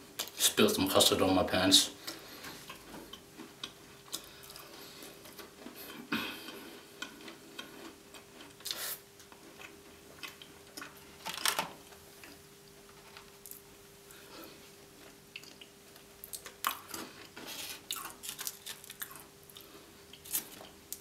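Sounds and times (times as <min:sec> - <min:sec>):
faint steady hum: 0:00.0 - 0:21.0
chewing gingerbread: 0:02.0 - 0:11.1, 0:13.4 - 0:21.0.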